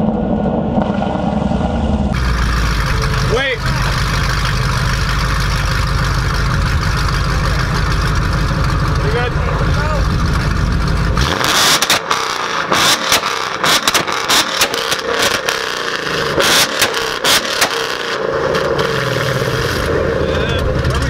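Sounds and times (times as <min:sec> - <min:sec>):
car engine idling and revving: 0:00.0 - 0:21.0
exhaust cracks and pops: 0:02.1 - 0:21.0.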